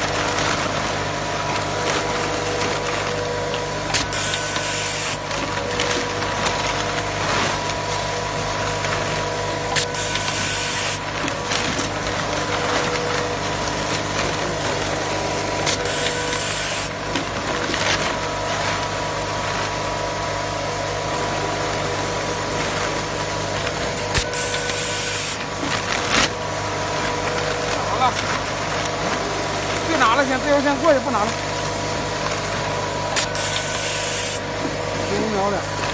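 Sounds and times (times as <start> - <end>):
machine hum: 0.0 - 35.9
air hiss bursts: 33.2 - 34.4.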